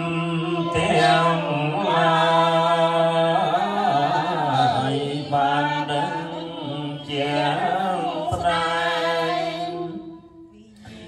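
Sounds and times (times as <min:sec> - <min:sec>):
women chanting in unison: 0:00.0 - 0:11.0.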